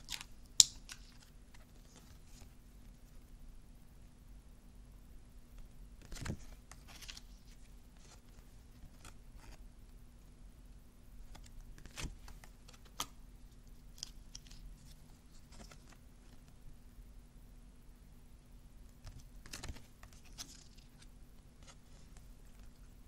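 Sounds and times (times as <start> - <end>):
cards rustling and tapping: 11.3 - 13.2, 19.1 - 22.7.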